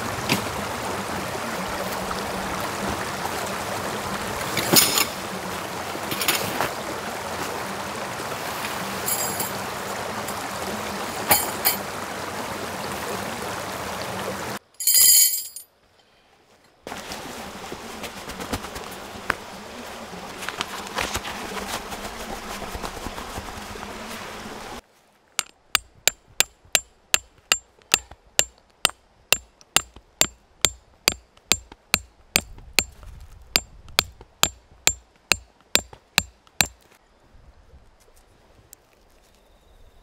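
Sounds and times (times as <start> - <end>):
hammer striking metal tent peg: 25.4 - 32.9, 33.6 - 36.8.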